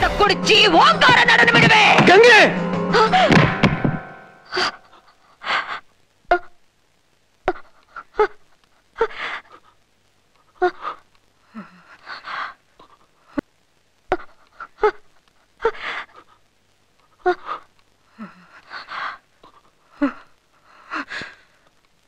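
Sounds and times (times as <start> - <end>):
woman gasping and panting: 9.0 - 9.8, 10.6 - 13.4, 15.6 - 16.5, 17.2 - 21.6.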